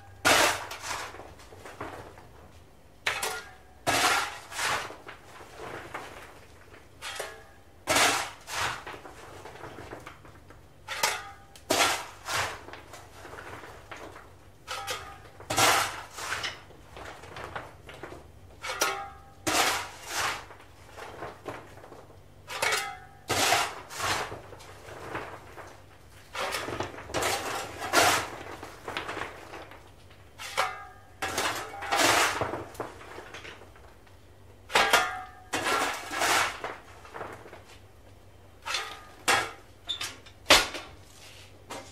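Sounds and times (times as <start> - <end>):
shovel scraping into coal: 0.2 - 1.2, 3.2 - 5.0, 7.9 - 8.9, 10.9 - 13.2, 14.7 - 16.6, 19.5 - 20.5, 22.5 - 24.3, 26.4 - 28.4, 31.2 - 32.5, 35.5 - 36.7.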